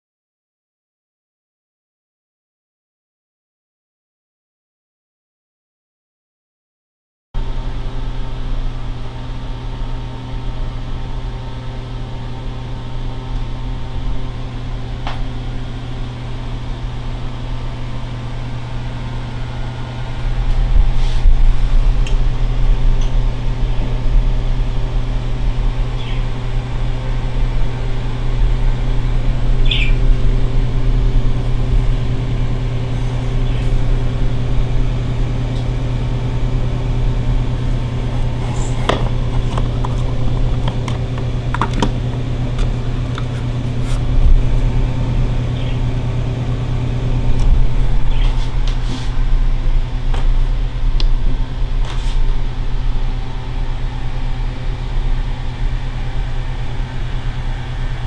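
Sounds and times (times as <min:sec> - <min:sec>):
computer fans humming: 0:07.4 - 0:58.0.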